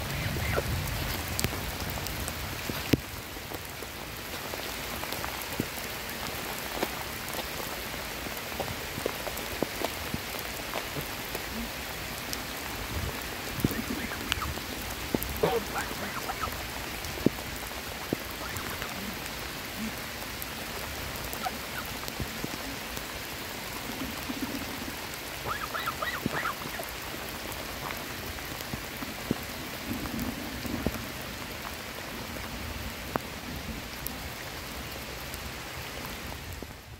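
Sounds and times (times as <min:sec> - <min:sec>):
heavy rain on water and pavement: 0:00.0 - 0:36.9
geese calling: 0:13.6 - 0:14.7, 0:15.4 - 0:16.7, 0:18.2 - 0:19.3, 0:21.3 - 0:22.0, 0:25.4 - 0:27.0.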